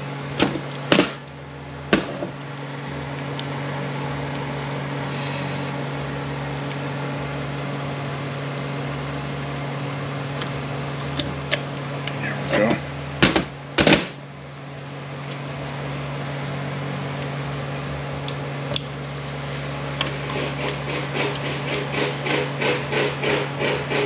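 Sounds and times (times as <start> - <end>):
low shop hum: 0.0 - 24.0
machine whirring: 19.1 - 24.0.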